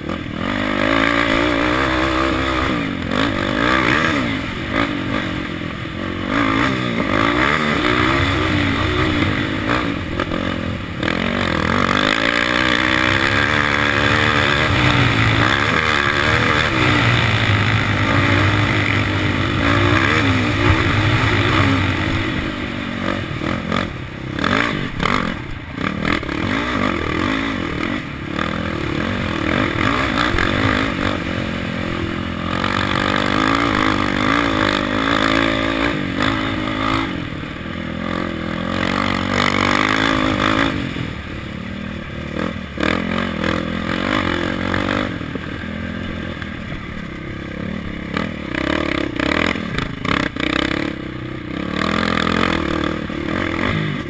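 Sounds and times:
quad engine revving: 0:00.0 - 0:54.0.

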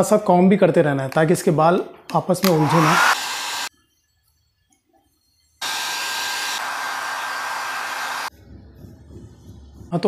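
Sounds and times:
hair dryer running: 0:02.4 - 0:03.7, 0:05.6 - 0:08.3.

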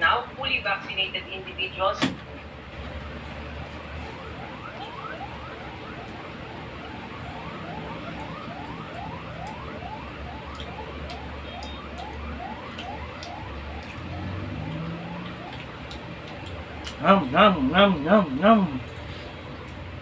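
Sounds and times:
siren-like electronic tone sweeping: 0:04.0 - 0:15.7.

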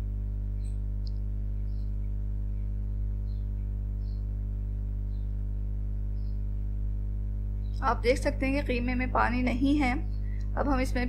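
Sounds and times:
steady low hum: 0:00.0 - 0:11.0
faint high-pitched chirps: 0:01.6 - 0:05.4.

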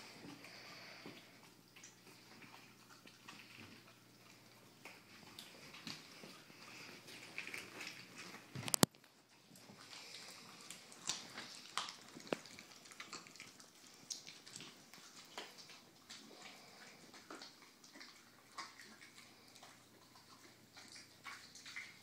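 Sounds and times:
dog chewing: 0:00.0 - 0:22.0
bone snapping: 0:11.0 - 0:13.2.

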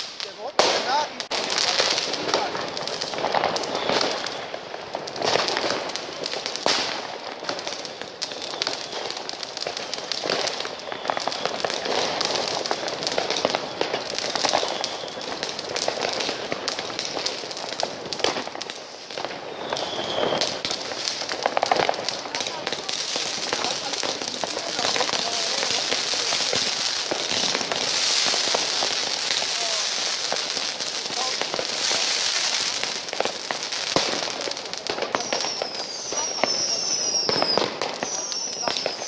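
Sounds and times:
fireworks cracking and banging: 0:00.0 - 0:39.0.

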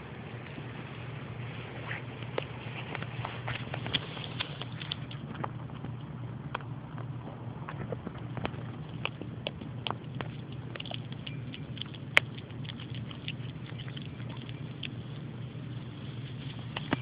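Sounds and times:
dog teeth clicking and snapping: 0:07.7 - 0:15.0.

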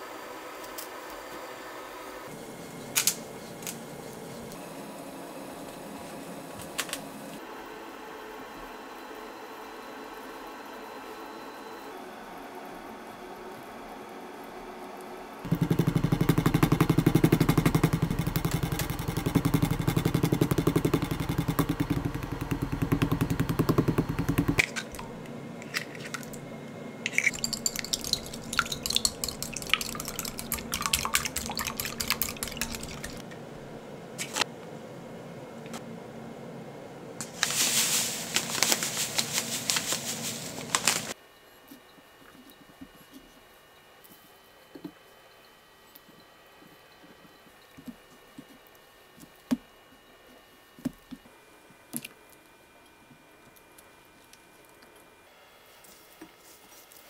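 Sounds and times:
eggs cracking into glass bowl: 0:27.1 - 0:33.2
whisk clicking in bowl: 0:27.1 - 0:33.2
rustling in flour: 0:37.2 - 0:41.2, 0:55.7 - 0:57.0.

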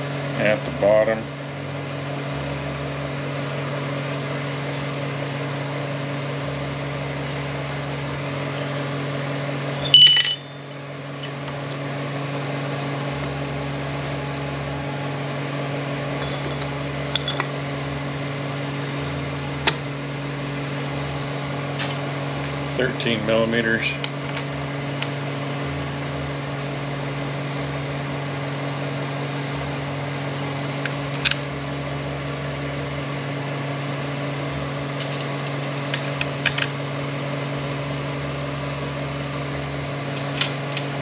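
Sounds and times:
shop equipment humming: 0:00.0 - 0:41.0
ringing metal clink: 0:09.8 - 0:10.6.

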